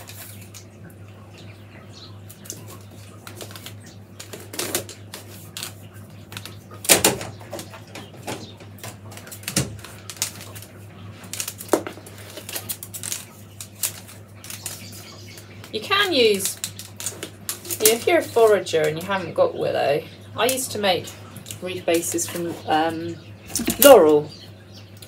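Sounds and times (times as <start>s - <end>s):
low steady hum: 0.0s - 25.0s
willow rods clicking and creaking: 8.7s - 19.2s.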